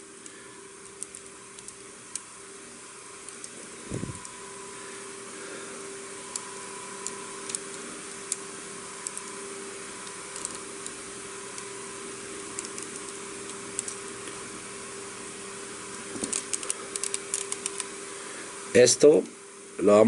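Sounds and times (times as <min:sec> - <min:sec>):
steady background hum: 0:00.0 - 0:20.0
plastic toy parts clicking: 0:10.0 - 0:10.6, 0:16.2 - 0:17.9.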